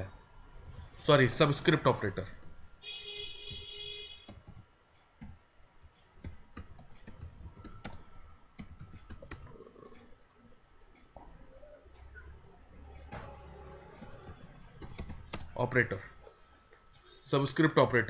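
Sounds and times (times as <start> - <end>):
keyboard keys clicking: 6.2 - 9.5, 14.0 - 15.6.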